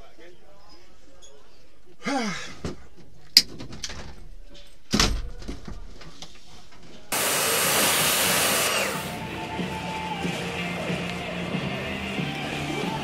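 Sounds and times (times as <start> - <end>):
pressure washer spray hissing: 7.1 - 9.2.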